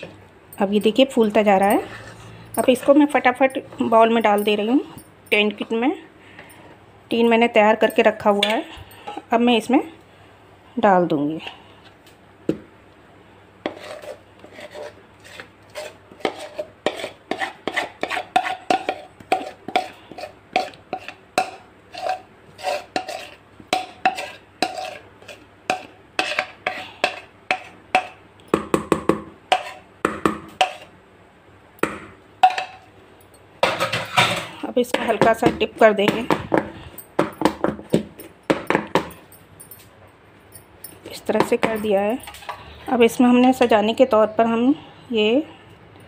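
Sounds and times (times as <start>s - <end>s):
spatula scraping a mixing bowl: 1.4s - 4.6s, 13.6s - 28.2s, 29.5s - 29.9s, 30.6s - 30.9s.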